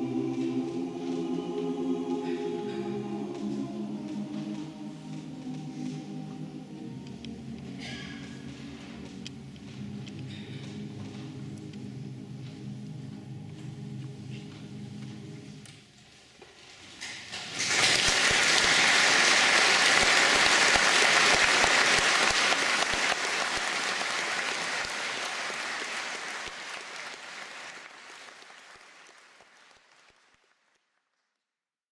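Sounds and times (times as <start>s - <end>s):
audience applauding: 17.6s - 31.2s.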